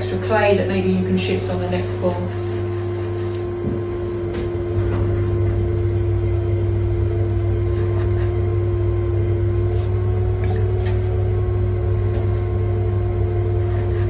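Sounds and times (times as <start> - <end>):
potter's wheel motor humming: 0.0 - 14.0.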